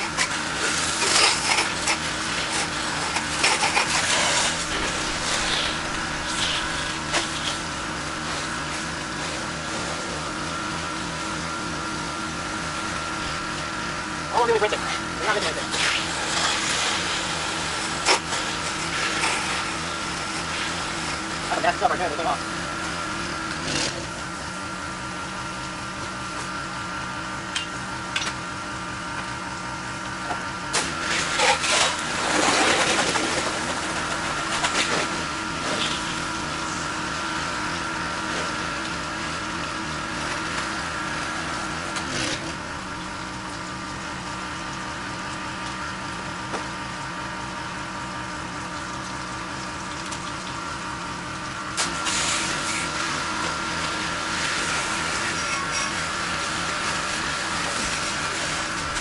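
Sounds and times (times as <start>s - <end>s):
pressure washer running: 0.0s - 59.0s
water spray: 3.5s - 8.5s, 51.8s - 53.0s.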